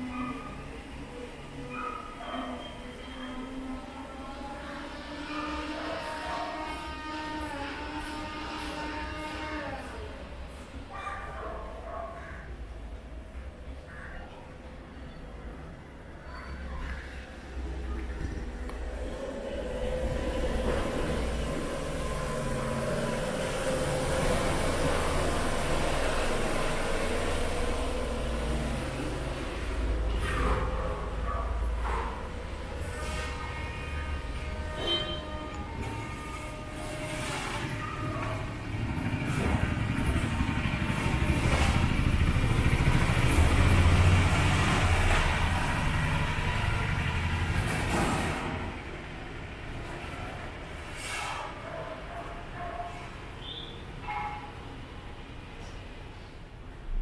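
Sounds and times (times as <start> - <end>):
vehicle engine droning: 3.0 - 10.7, 16.8 - 51.2.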